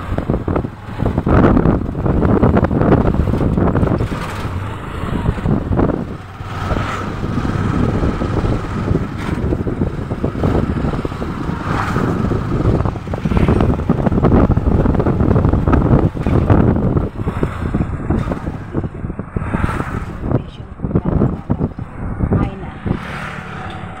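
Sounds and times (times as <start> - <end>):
motorcycle engine running: 0.0 - 19.2
road noise: 0.0 - 24.0
wind buffeting microphone: 0.0 - 24.0.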